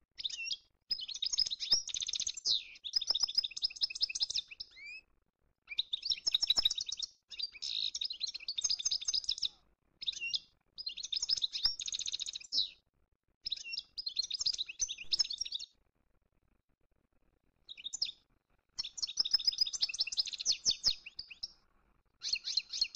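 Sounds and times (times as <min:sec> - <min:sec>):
songbird twittering: 0:00.2 - 0:05.0, 0:05.7 - 0:12.8, 0:13.4 - 0:15.7, 0:17.7 - 0:18.2, 0:18.8 - 0:21.6, 0:22.2 - 0:22.9.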